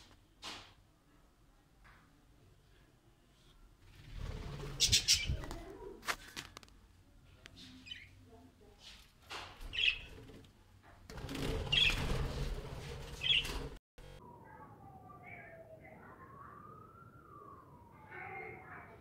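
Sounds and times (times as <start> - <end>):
rustling noise: 3.3 - 7.8, 8.7 - 13.8.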